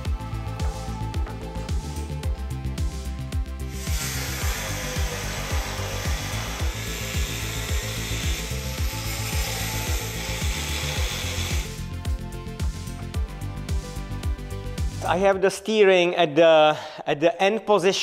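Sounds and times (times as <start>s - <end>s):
background music with steady beat: 0.0s - 16.6s
angle grinder cutting metal: 3.7s - 11.9s.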